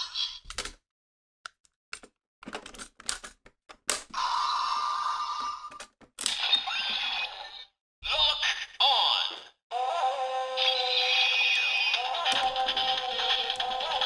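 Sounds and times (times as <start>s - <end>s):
toy electronic sound effect: 6.3s - 9.9s, 10.6s - 14.0s.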